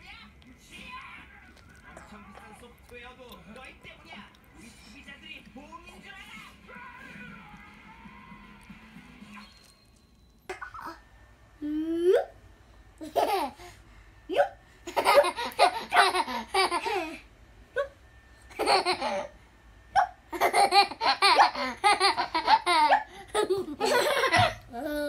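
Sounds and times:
young children giggling: 14.9 - 17.2, 18.5 - 19.4, 20.0 - 25.0.

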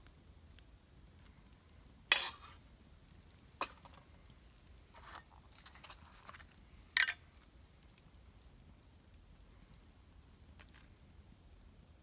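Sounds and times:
metal pan and utensil clattering: 2.1 - 2.6, 3.6 - 4.0, 7.0 - 7.2.

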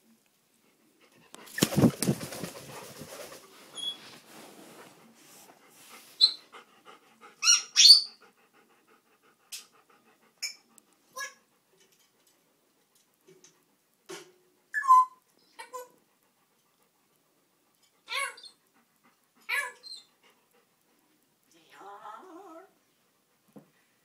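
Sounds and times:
dog panting: 0.5 - 13.8, 15.8 - 21.4
parrot whistles and squawks: 6.2 - 6.4, 7.4 - 8.2, 14.7 - 15.9
parrot chirps: 7.4 - 8.2, 14.7 - 15.8.

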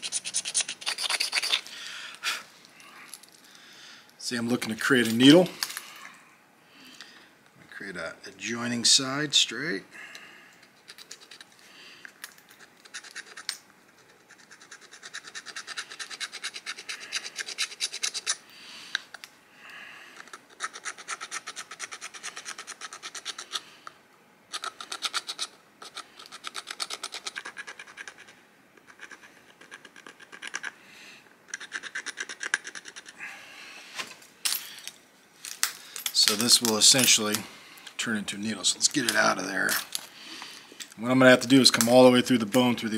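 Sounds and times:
stone scraping bone: 0.0 - 1.7.

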